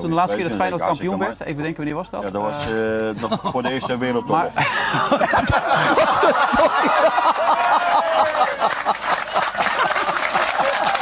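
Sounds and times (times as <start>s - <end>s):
crowd laughing loudly: 3.2s - 11.0s
people clapping: 5.8s - 11.0s.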